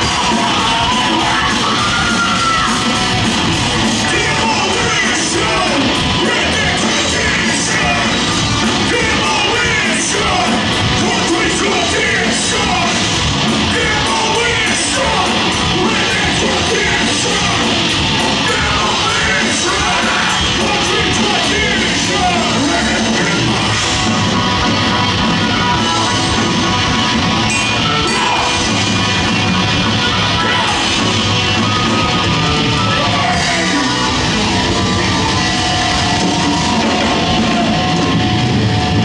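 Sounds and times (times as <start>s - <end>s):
heavy metal band playing: 0.0s - 39.0s
vocalist yelling: 4.0s - 24.1s, 27.7s - 29.1s, 29.8s - 35.9s.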